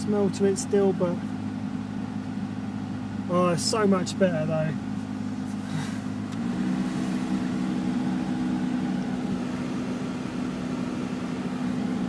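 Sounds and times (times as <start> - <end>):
car engine idling: 0.0 - 12.0
heater fan air rushing: 5.0 - 12.0.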